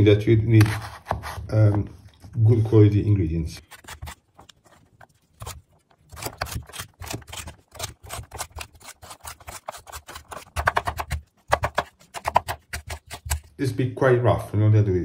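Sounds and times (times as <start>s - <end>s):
knife chopping on wooden board: 5.4s - 13.5s.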